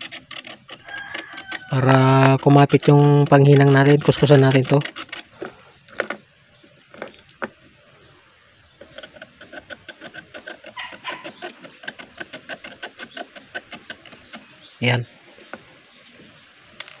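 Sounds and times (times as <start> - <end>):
metal blade scraping metal: 8.9 - 14.4.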